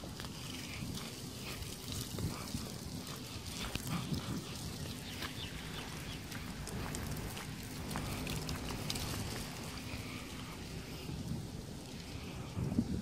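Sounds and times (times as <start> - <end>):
low rumble: 3.4 - 12.8
high chirps and ticks: 4.5 - 9.5.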